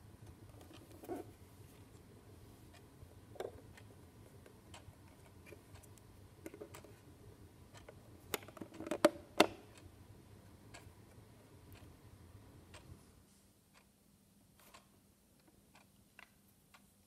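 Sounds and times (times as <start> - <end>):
clock ticking: 0.0 - 13.0, 13.7 - 17.0
plastic clicks and knocks: 8.3 - 9.6.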